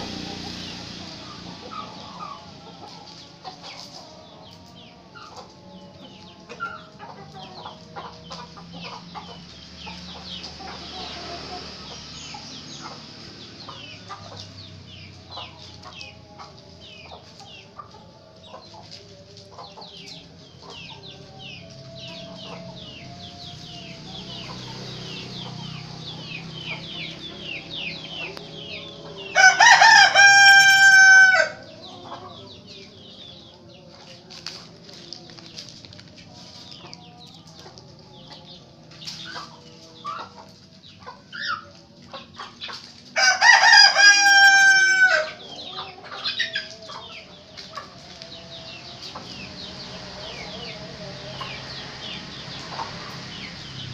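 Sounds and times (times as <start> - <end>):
rooster crowing: 27.6 - 32.5, 43.2 - 46.9.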